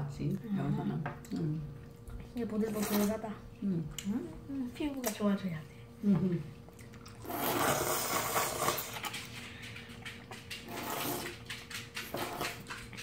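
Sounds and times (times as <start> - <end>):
wet chewing smacks: 6.6 - 13.0
noodle slurping: 6.9 - 13.0.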